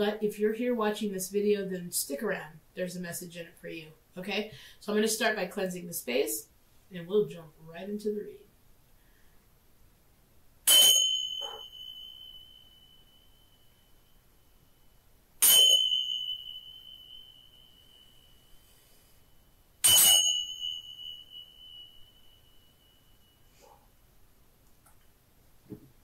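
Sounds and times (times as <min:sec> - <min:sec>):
small cymbals ringing: 0:10.6 - 0:23.8.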